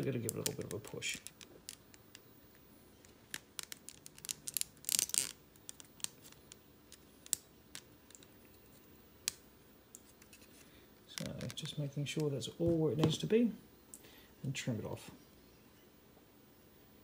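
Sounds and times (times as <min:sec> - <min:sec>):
plastic scraping rustle: 0:03.0 - 0:08.8.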